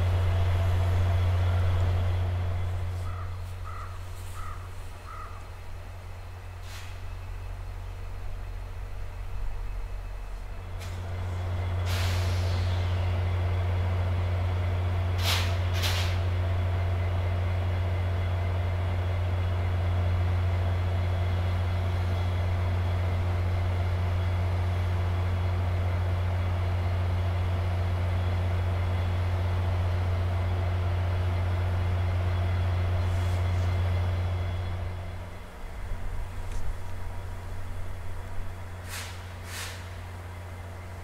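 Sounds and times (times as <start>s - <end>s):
diesel locomotive engine droning: 0.0s - 41.0s
air hissing: 6.6s - 7.0s, 11.8s - 13.0s, 15.2s - 16.3s, 38.8s - 40.1s.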